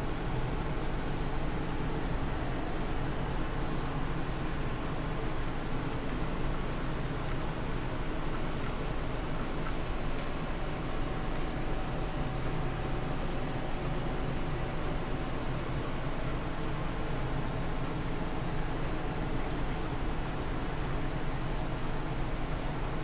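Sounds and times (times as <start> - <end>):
insect chirping: 0.0 - 2.2, 3.1 - 5.4, 6.8 - 8.2, 9.2 - 9.6, 10.4 - 18.7, 20.8 - 21.6
steady low hum: 0.0 - 23.0.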